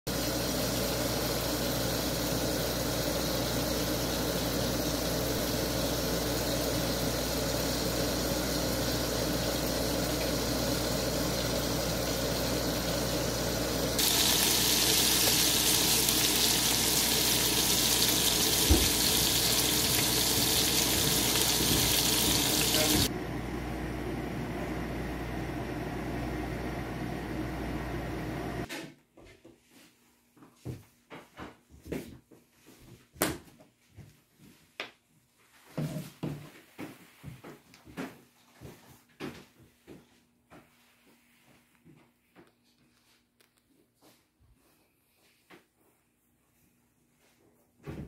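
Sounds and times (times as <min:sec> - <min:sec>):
patties sizzling in oil: 0:00.1 - 0:23.1
water boiling in a pot: 0:00.1 - 0:23.1.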